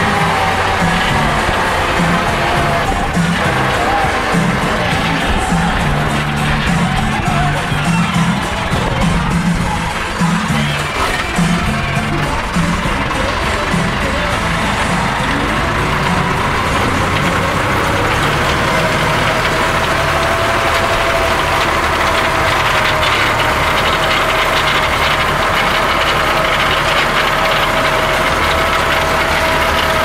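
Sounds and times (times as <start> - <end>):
high whine of rotary tiller: 0.0 - 30.0
tractor engine running: 0.0 - 30.0.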